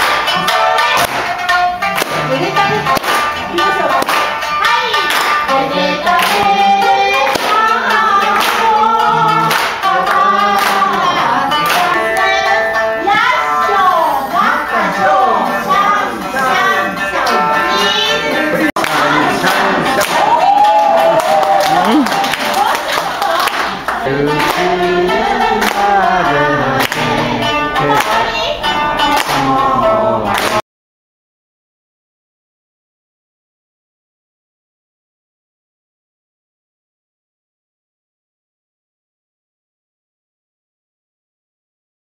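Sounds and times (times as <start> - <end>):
audience clapping on the beat: 0.0 - 5.5, 6.1 - 10.9, 18.8 - 28.3, 29.0 - 29.7, 30.3 - 30.6
person singing: 0.2 - 30.6.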